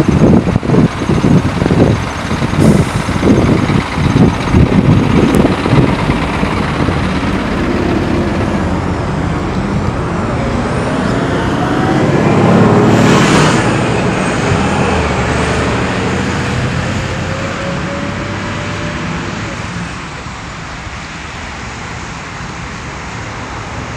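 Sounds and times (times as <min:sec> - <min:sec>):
road traffic noise: 0:00.0 - 0:23.9
vehicle passing close: 0:02.6 - 0:22.6.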